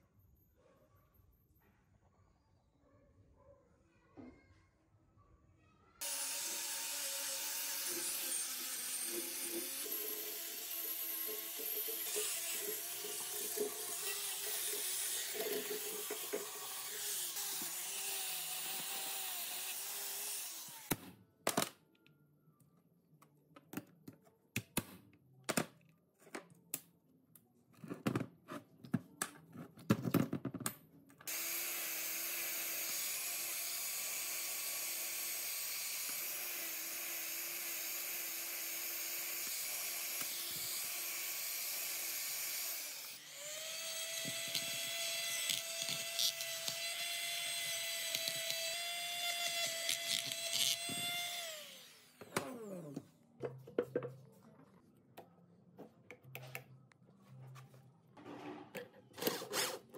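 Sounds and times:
power tool running: 6.0 - 21.0, 31.3 - 53.0.

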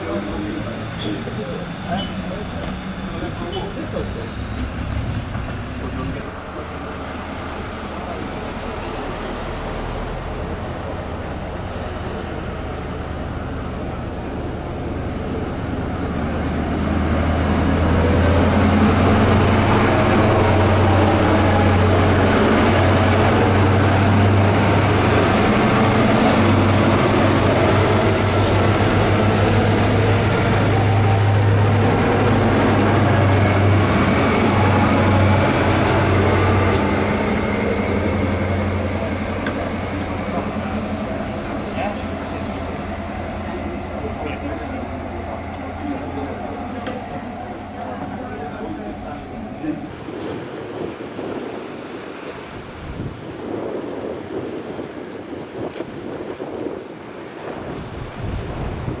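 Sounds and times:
diesel train passing: 0.0 - 50.8
high wheel squeal: 37.5 - 49.8.

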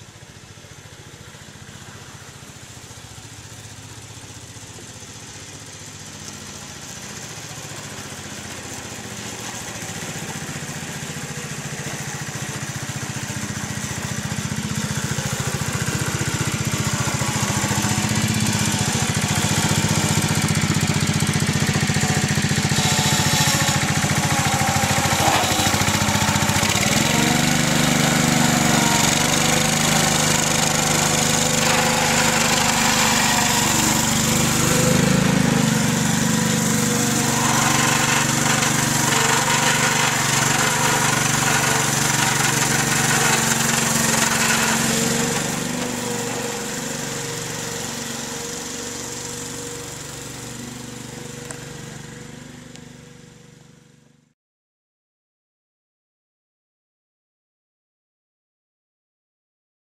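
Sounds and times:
small locomotive engine running: 0.0 - 54.2.

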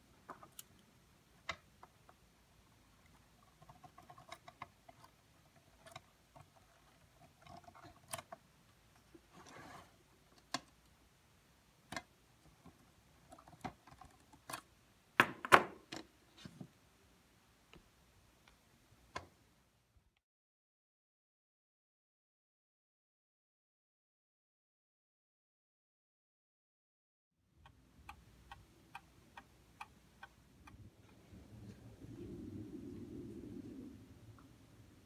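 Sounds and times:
short scrape: 9.3 - 10.0.

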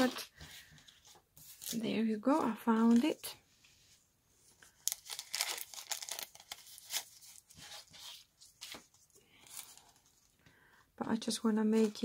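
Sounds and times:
paper rustling and crinkling: 0.0 - 1.8, 4.6 - 10.4, 11.7 - 12.0.

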